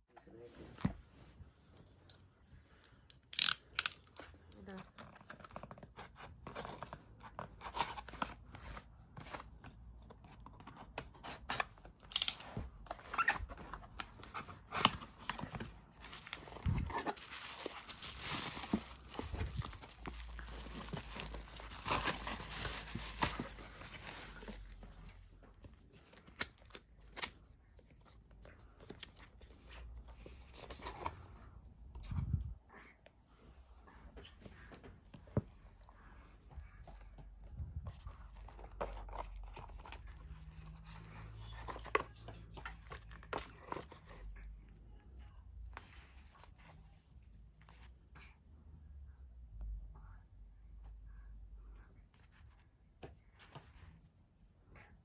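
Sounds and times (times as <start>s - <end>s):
bubble wrap crinkling and tearing: 13.1s - 24.8s.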